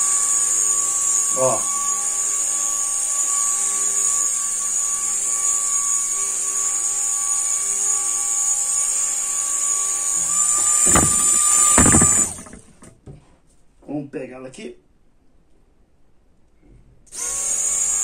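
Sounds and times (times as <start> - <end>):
sharp knocks: 10.4 - 13.2.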